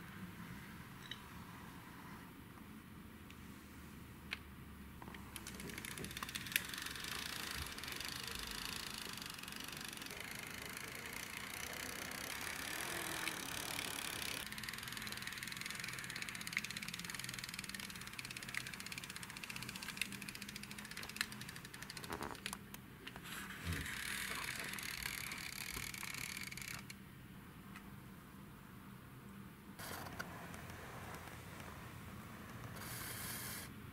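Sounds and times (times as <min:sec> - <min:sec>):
sharp clicks: 0:05.0 - 0:22.8, 0:24.0 - 0:27.0
toy car motor whirring: 0:05.4 - 0:22.4, 0:23.5 - 0:26.9.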